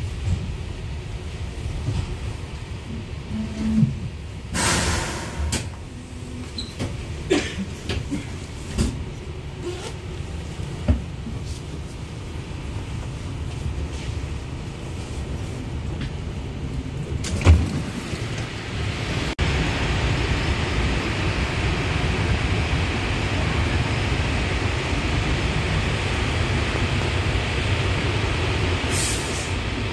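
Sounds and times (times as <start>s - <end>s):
elevator car rumbling: 0.0s - 29.9s
loud steady hiss: 4.5s - 5.8s.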